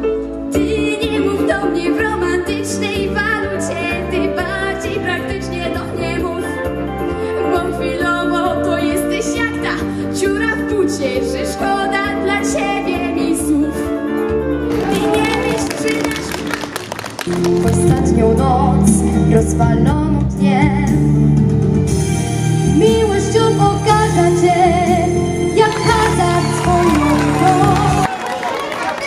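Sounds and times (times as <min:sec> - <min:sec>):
girl singing into a microphone: 0:00.5 - 0:13.9, 0:17.6 - 0:21.1, 0:22.8 - 0:28.0.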